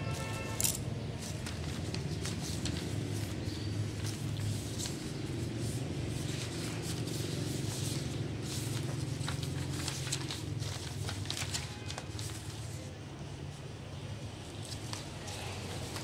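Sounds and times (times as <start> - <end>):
wrapping paper crinkling: 1.1 - 12.8.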